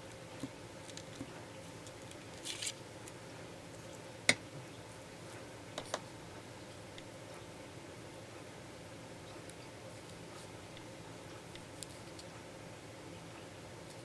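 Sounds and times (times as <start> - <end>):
paper rustling: 2.2 - 2.8.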